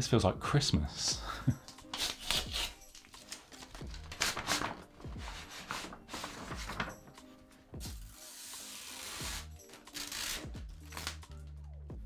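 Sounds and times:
wrapping paper rustling: 0:02.0 - 0:07.4.

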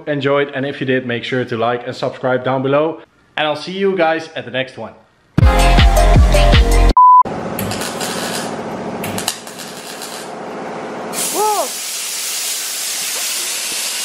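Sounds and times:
short steady beep: 0:07.0 - 0:07.3
welding torch crackling and hissing: 0:07.6 - 0:10.4, 0:11.1 - 0:14.0.

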